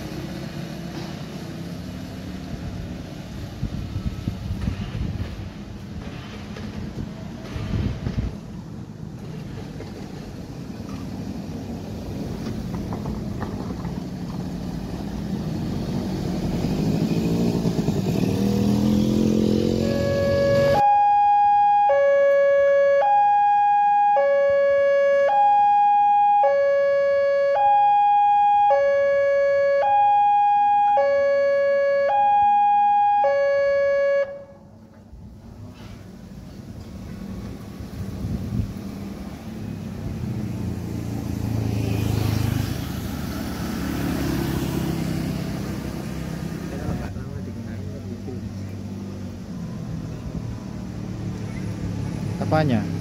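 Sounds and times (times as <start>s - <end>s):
wind on microphone: 3.4s - 6.1s, 6.7s - 8.4s, 37.9s - 39.0s
vehicle engine rising in pitch: 15.2s - 34.6s, 38.2s - 47.1s
two-tone level crossing alarm: 19.8s - 34.6s.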